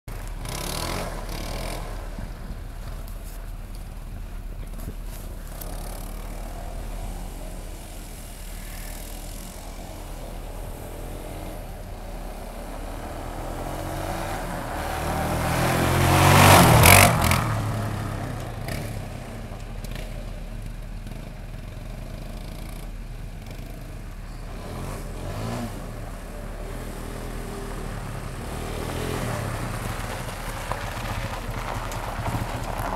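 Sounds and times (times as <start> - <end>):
atv engine running: 0.1 - 32.9.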